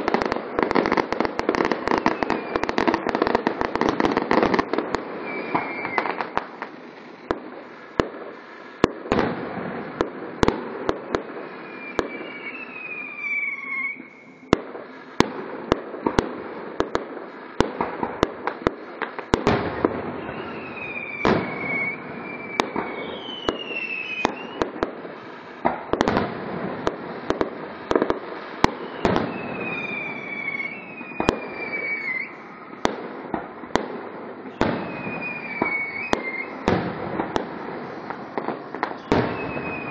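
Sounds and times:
fireworks bangs and crackling: 0.0s - 39.9s
whistles falling in pitch: 5.2s - 6.2s, 11.7s - 14.5s, 34.8s - 36.6s, 39.0s - 39.9s.

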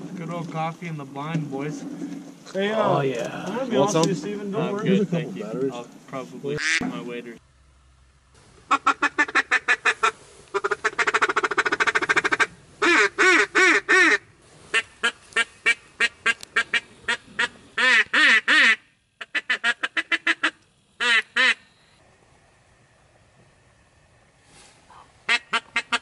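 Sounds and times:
duck call quacks: 6.6s - 6.8s, 8.7s - 21.6s, 24.9s - 26.0s
duck call rattling chatter: 6.6s - 6.8s, 8.7s - 21.6s, 25.3s - 26.0s.

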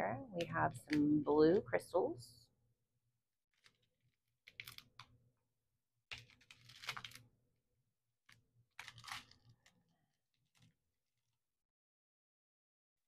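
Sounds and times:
plastic bags crinkling: 6.1s - 7.2s, 8.8s - 9.8s.

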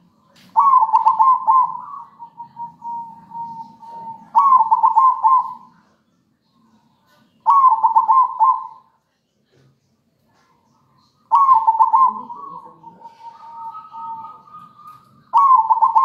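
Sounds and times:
dove cooing: 0.0s - 5.9s, 7.1s - 8.9s, 11.0s - 16.0s.

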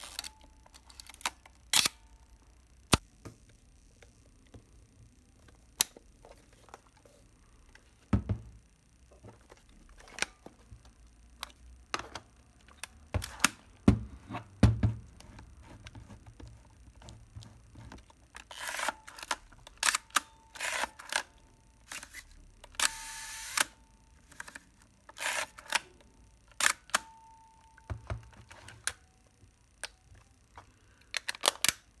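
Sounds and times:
camera mechanical clicks: 0.0s - 2.0s.

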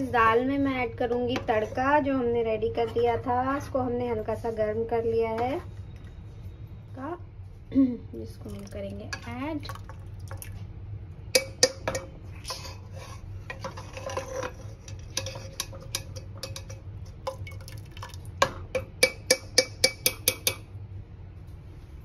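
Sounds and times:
steel ladle clinking on metal pot: 11.3s - 12.8s, 13.5s - 20.7s.

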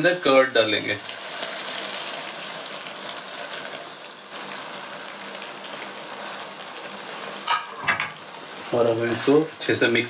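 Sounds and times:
gravy sizzling in a pan: 0.0s - 10.0s.

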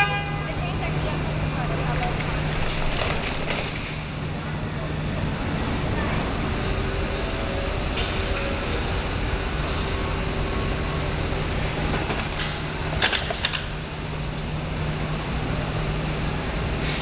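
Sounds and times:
factory hum: 0.0s - 17.0s
car engine low rumble: 0.3s - 17.0s.

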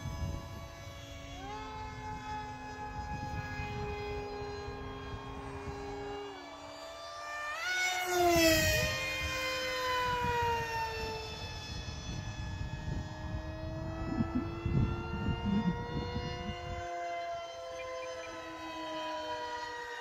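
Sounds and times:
model jet fan whining: 0.0s - 20.0s
steady whine: 0.0s - 20.0s
gusty low rumble: 11.9s - 16.7s.

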